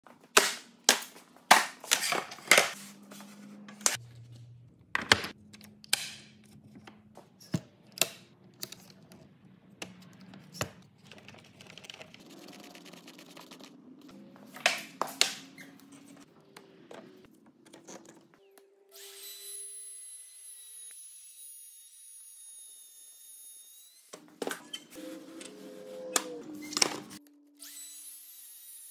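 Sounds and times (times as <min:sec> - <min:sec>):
router motor whine: 0:19.0 - 0:24.1.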